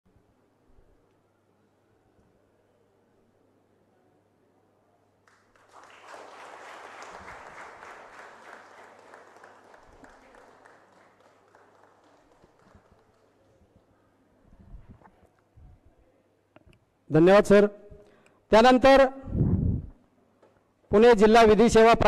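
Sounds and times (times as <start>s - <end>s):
audience applauding: 5.3s - 13.9s.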